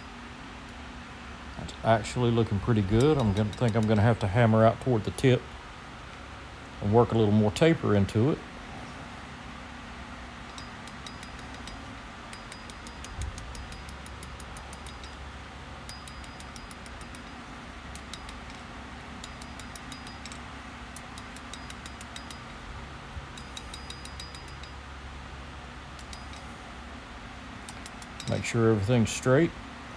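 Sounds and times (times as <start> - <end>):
steady low hum: 0.0 - 29.9
hammer striking hot steel on anvil: 2.8 - 4.0, 10.5 - 15.2, 15.9 - 17.4, 19.2 - 20.4, 21.0 - 22.5, 23.4 - 24.8.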